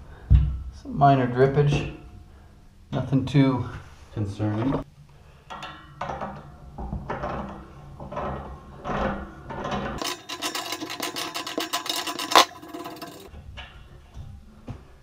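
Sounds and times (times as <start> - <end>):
wrench scraping on metal nut: 9.9 - 13.3
fast run of wrench clicks: 10.0 - 13.3.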